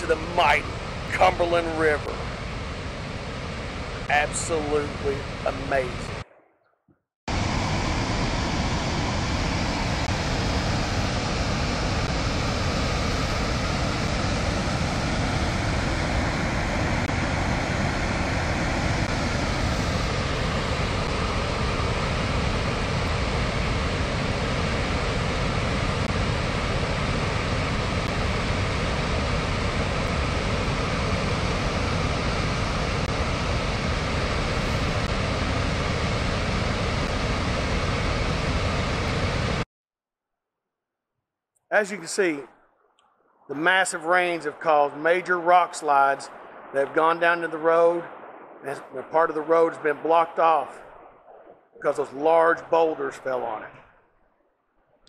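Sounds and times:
water rushing through dam spillway: 4.1s - 5.9s.

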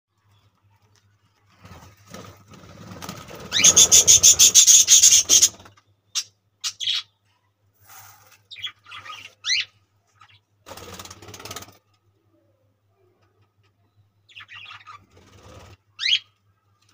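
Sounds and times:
budgerigars chirping: 3.5s - 5.6s, 6.2s - 7.1s, 8.5s - 9.7s, 16.0s - 16.2s.

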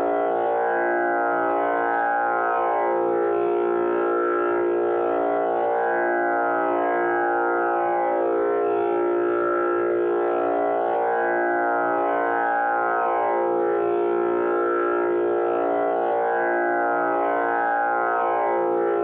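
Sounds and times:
tanpura drone: 0.0s - 19.0s.

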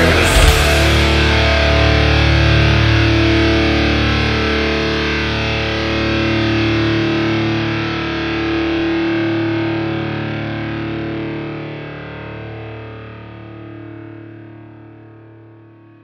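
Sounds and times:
distorted electric guitar chord: 0.0s - 7.7s.

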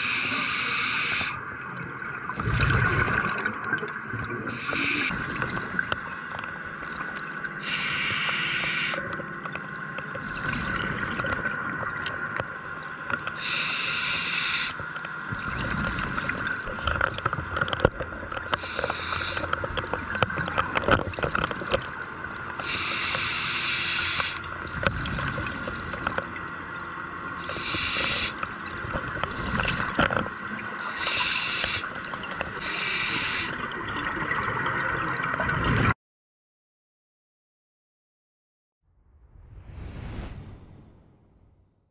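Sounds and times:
diver breathing through regulator: 0.0s - 1.4s, 4.5s - 5.2s, 7.6s - 9.0s, 13.4s - 14.8s, 18.5s - 19.5s, 22.6s - 26.1s, 27.4s - 28.4s, 30.8s - 31.9s, 32.6s - 33.6s
exhaled bubbles rushing: 2.0s - 7.2s.

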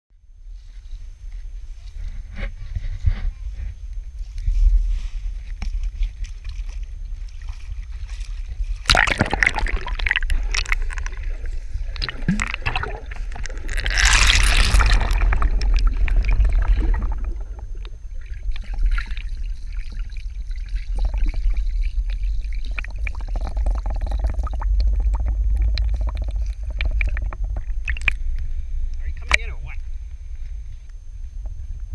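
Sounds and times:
underwater low rumble: 0.1s - 31.9s
splashing and bubbles: 6.4s - 28.4s
water splashing: 8.8s - 28.2s.

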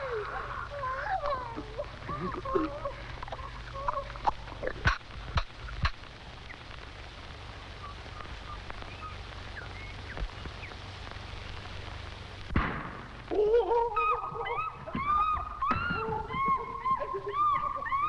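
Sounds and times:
film hiss: 0.0s - 18.0s
low hum: 0.0s - 18.0s
loud thump: 12.5s - 13.1s.

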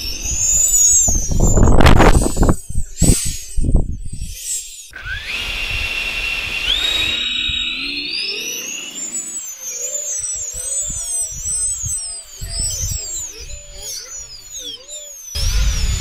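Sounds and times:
electric fan motors whining: 0.0s - 16.0s
loud rushing noise: 15.4s - 16.0s.

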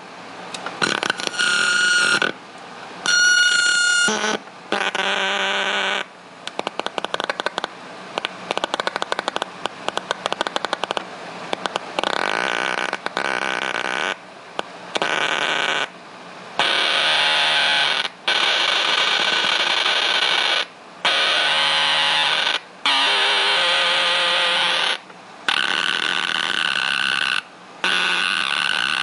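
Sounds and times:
distorted keyboard tone: 0.8s - 2.4s, 3.1s - 6.1s, 15.0s - 15.9s, 16.6s - 29.0s
rapid stutter of clicks: 6.4s - 12.2s.

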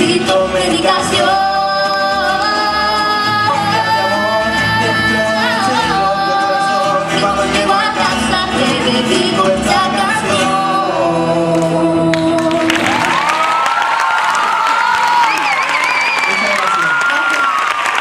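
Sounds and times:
boy singing long notes: 0.0s - 12.8s
acoustic guitars: 0.0s - 16.2s.

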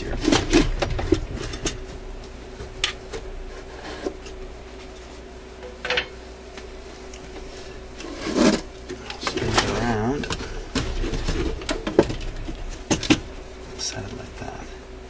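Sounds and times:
record player knocks and clicks: 0.0s - 3.3s, 9.2s - 13.3s
faint steady hum: 0.0s - 15.0s.

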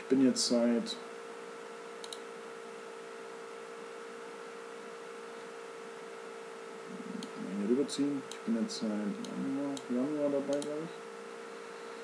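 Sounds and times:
electrical hum: 0.0s - 12.0s
faint click: 2.0s - 2.3s, 10.5s - 10.8s.

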